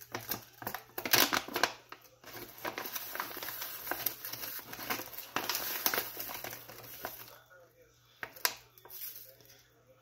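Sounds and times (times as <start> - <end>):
paper pouch crinkling: 0.0 - 7.4.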